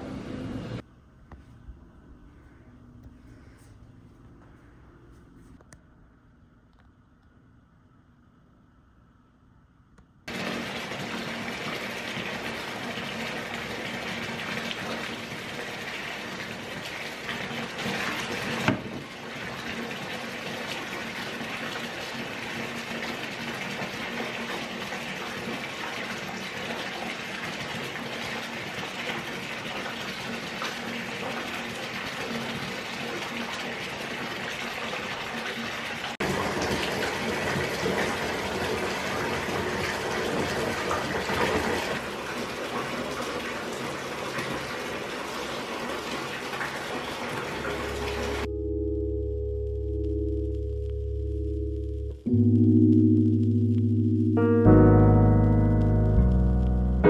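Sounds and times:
water gushing into bathtub: 10.3 - 48.5.

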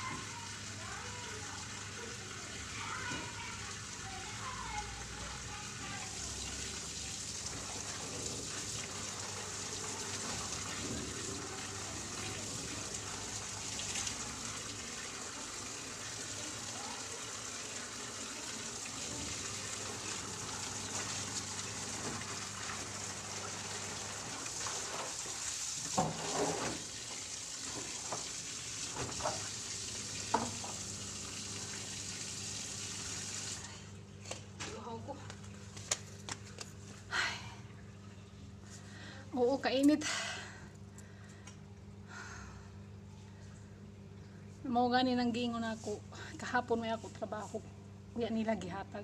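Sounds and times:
water running from a tap: 0.0 - 33.9.

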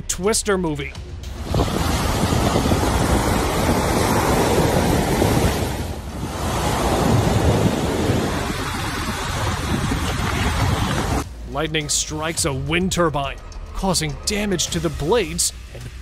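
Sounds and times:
strong wind buffeting microphone: 1.2 - 11.3
surf breaking on beach: 1.3 - 11.2.

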